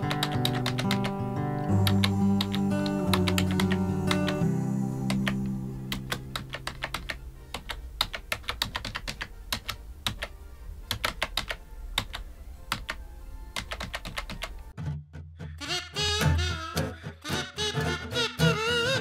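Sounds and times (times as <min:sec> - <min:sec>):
typing on a keyboard: 0:00.0 - 0:01.2, 0:01.8 - 0:04.4, 0:06.0 - 0:13.0, 0:13.6 - 0:14.6
low sustained music notes: 0:00.0 - 0:08.0.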